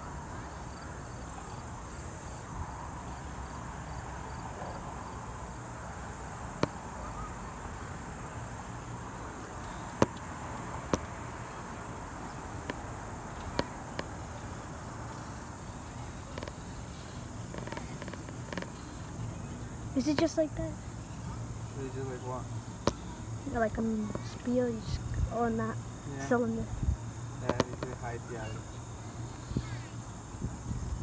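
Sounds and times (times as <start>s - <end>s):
insects chirping faintly: 0.0s - 31.0s
sharp clicks: 27.4s - 28.0s.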